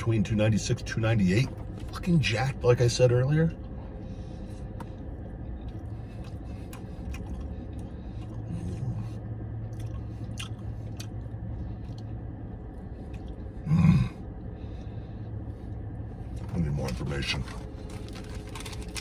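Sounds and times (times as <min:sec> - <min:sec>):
low hum inside a car: 0:00.0 - 0:19.0
man chewing food: 0:03.5 - 0:16.5.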